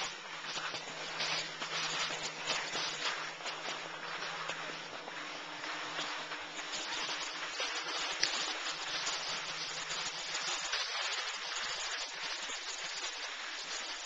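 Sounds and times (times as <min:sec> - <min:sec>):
skis scraping on slushy snow: 0:00.0 - 0:14.0.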